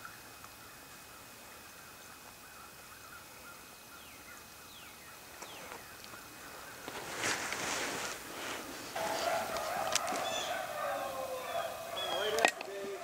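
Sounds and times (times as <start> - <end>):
rustling noise: 5.3 - 10.7
distant hounds baying: 5.7 - 13.0.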